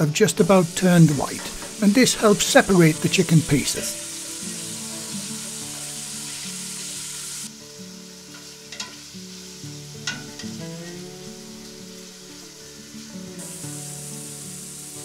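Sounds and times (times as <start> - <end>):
chicken sizzling in oil: 0.0 - 15.0
soft background music: 0.0 - 15.0
spoon clicking against pan: 8.3 - 9.0, 10.0 - 10.4.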